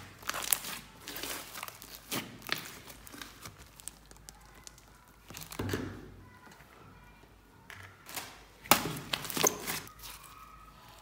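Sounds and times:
slime crackling and popping: 0.0 - 5.6.

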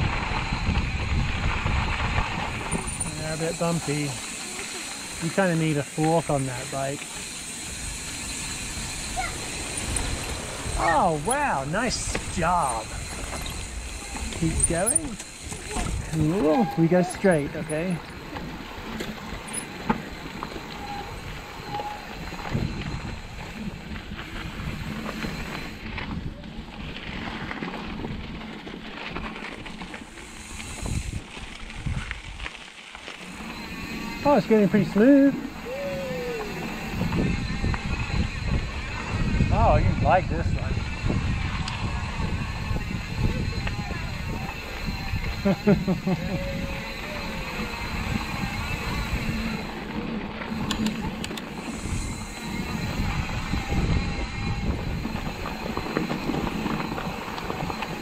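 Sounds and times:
wind on microphone: 0.0 - 3.9, 7.6 - 17.2, 20.8 - 26.4, 30.5 - 32.4, 35.4 - 58.0
bike rattling: 0.0 - 58.0.

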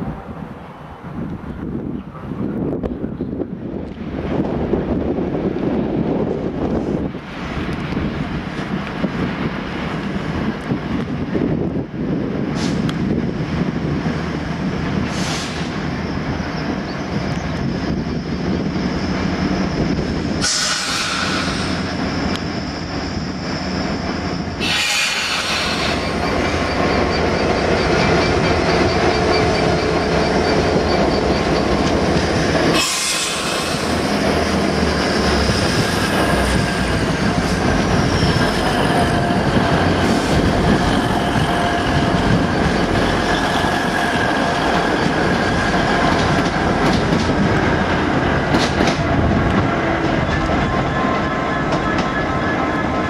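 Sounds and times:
diesel locomotive passing: 0.0 - 53.0
diesel train moving: 0.0 - 53.0
wheels squealing: 15.4 - 46.5.

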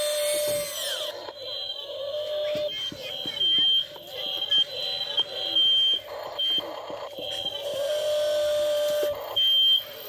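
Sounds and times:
electric motor hum: 0.0 - 3.3, 4.2 - 10.0
high-pitched electronic beeps: 0.0 - 10.0.

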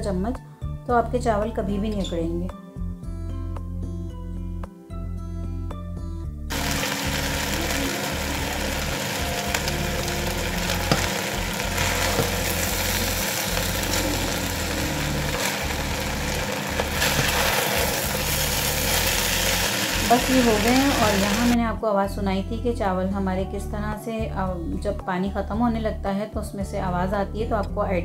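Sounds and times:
background music: 0.0 - 28.0
rice sizzling in a pot: 6.5 - 21.6.

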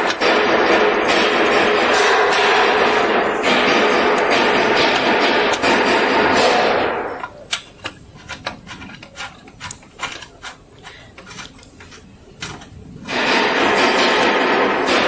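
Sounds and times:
connector clicks and scrapes: 7.2 - 12.8.

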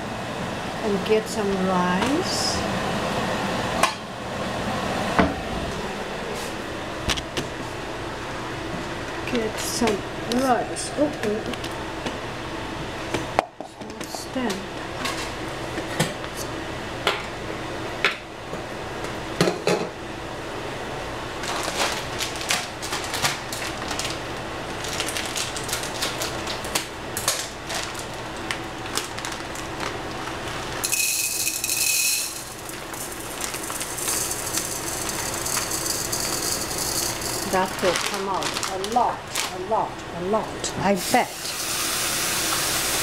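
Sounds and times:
dishes clattering in metal sink: 19.4 - 19.9
rice poured into bowl: 30.8 - 37.8.

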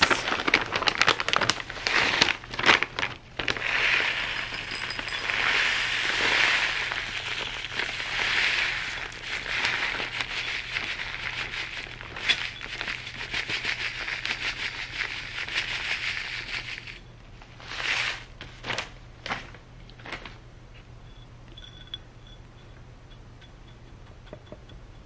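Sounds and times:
plastic bag crinkling: 0.0 - 17.0, 17.6 - 20.4
potting mix pouring into bowl: 0.0 - 17.0.

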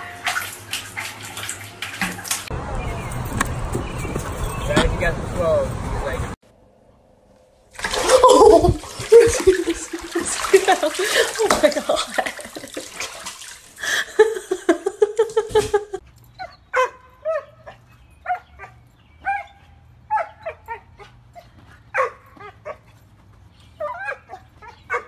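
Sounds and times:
dog yipping and barking: 16.4 - 22.8, 23.8 - 25.0.

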